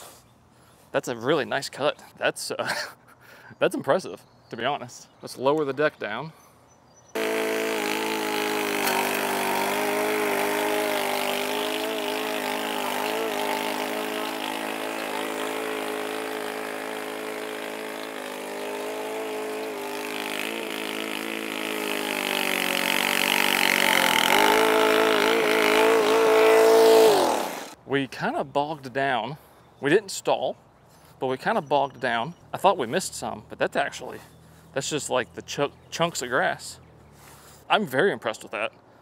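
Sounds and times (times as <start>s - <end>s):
mower engine running: 7.2s - 27.8s.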